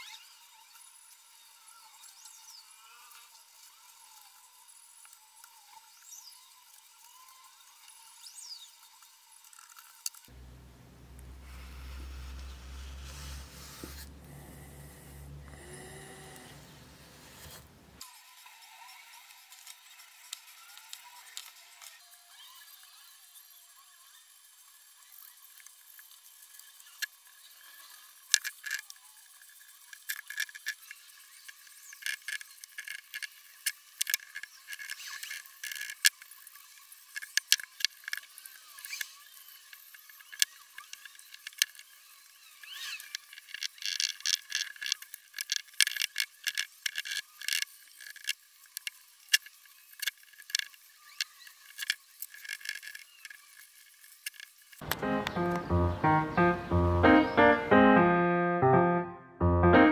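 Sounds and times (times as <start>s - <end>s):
paintbrush scraping on wood: 10.3s - 15.5s, 16.2s - 18.0s.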